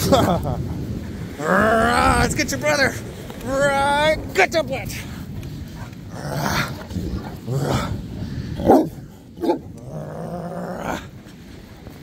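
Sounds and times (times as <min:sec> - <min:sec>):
dog barking deeply: 0:08.6 - 0:09.6
dog grumbling: 0:08.6 - 0:11.1.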